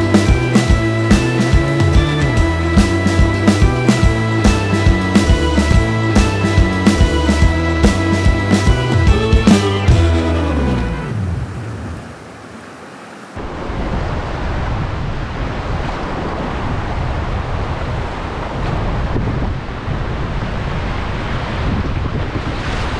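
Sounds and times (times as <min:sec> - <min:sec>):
whitewater rapids rushing: 0:00.0 - 0:14.4
wind buffeting microphone: 0:13.4 - 0:22.9.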